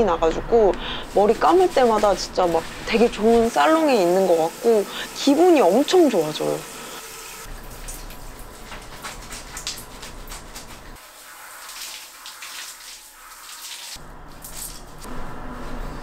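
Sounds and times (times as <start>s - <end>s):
shower water spraying: 0.8s - 14.8s
water dripping: 7.5s - 10.8s, 11.4s - 14.0s.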